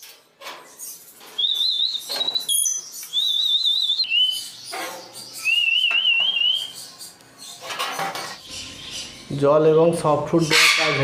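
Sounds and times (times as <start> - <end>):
parrot whistling: 1.4 - 4.6, 5.4 - 6.8.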